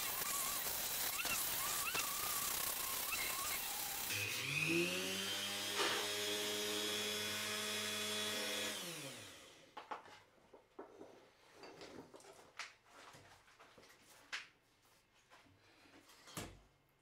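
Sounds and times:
rotary tool grinding wood: 0:00.0 - 0:09.5.

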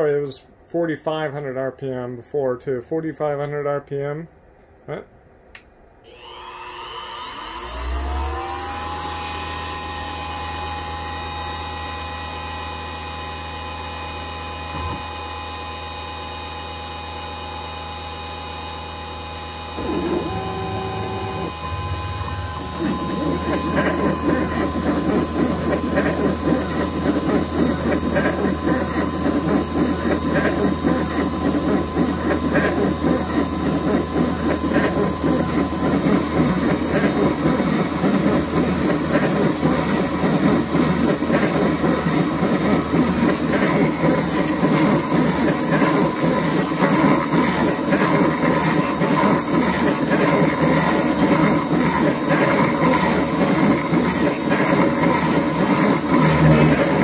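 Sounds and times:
milling spindle whirring: 0:19.0 - 0:57.0
cutter rasping through metal: 0:19.8 - 0:57.0.

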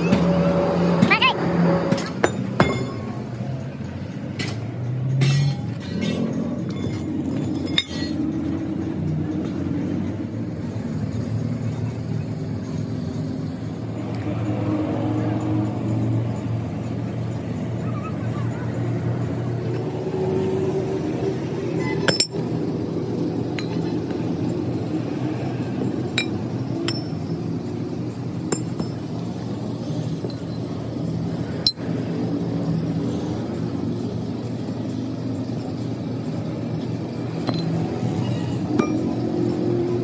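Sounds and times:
steady mechanical hum: 0:00.0 - 0:40.0
sharp metallic clinks: 0:21.7 - 0:33.2, 0:34.8 - 0:39.7.

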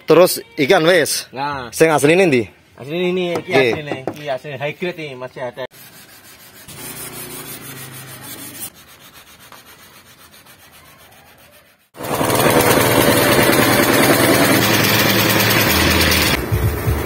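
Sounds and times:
sandpaper rubbing on paint: 0:05.7 - 0:12.0.

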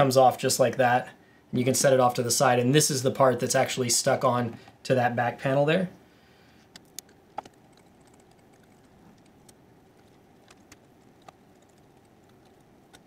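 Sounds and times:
faint clicks of small parts: 0:06.6 - 0:13.0.

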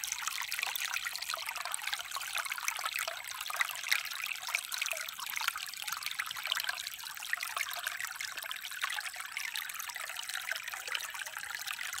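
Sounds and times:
creek water trickling over rocks: 0:00.0 - 0:12.0.

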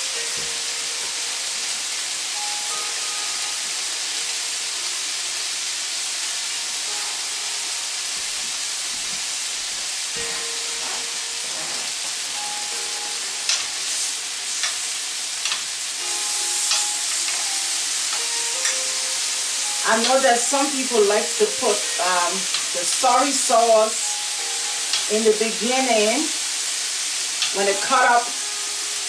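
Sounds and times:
meat sizzling in pan: 0:00.0 - 0:29.0
metal tongs clicking on pan: 0:16.7 - 0:17.4.

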